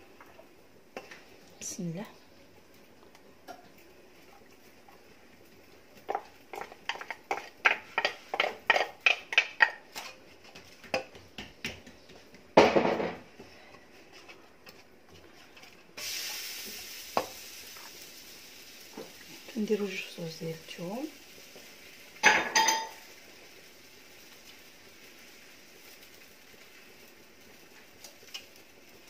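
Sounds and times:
kitchenware knocks and clatter: 12.6 - 13.3, 22.2 - 22.9
steady hiss: 15.9 - 29.0.

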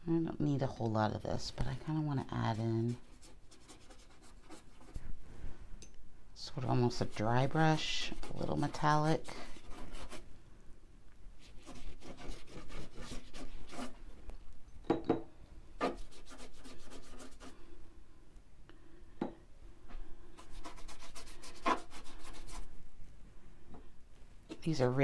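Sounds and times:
paintbrush strokes on paper: 1.6 - 5.2, 6.6 - 10.2, 11.4 - 14.0, 15.8 - 17.6, 20.3 - 22.7.

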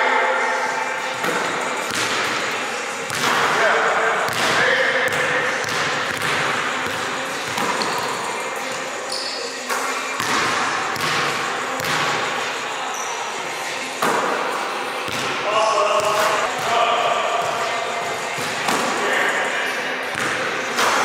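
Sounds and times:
shoe squeaks: 7.6 - 10.0, 12.9 - 13.5.

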